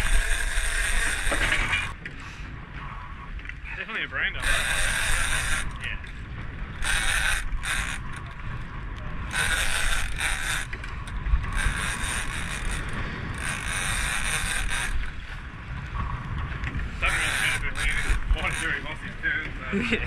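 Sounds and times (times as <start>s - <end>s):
fishing reel winding: 0.0s - 2.0s, 4.4s - 6.2s, 6.8s - 8.4s, 9.3s - 15.2s, 17.0s - 18.8s.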